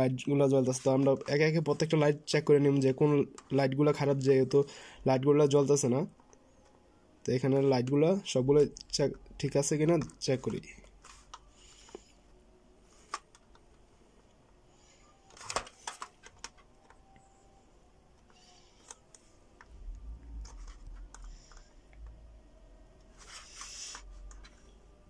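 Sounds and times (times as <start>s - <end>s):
low rumble: 19.7s - 21.2s.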